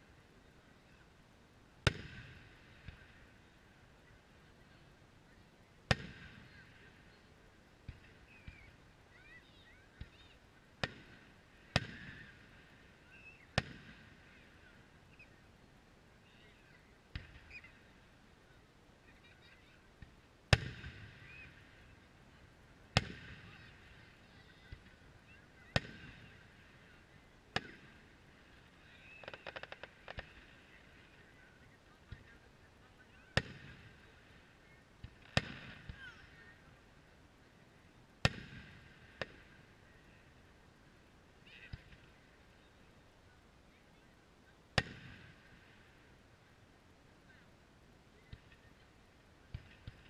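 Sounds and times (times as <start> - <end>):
crackling fireworks rattle: 20.1 - 31.3.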